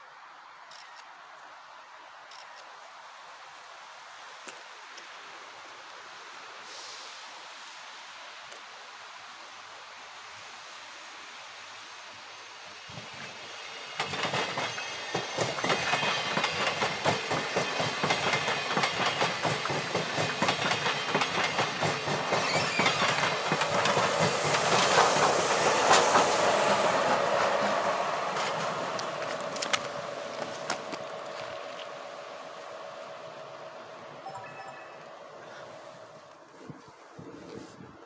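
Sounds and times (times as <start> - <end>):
diesel locomotive passing: 10.4 - 36.5
train wheels clattering over rail joints: 14.0 - 26.8.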